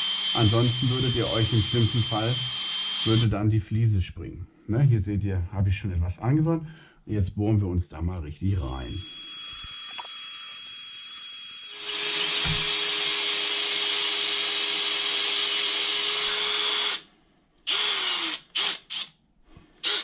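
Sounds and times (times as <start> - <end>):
electric drill boring through tile: 0.0 - 3.3, 8.5 - 17.1, 17.7 - 19.1.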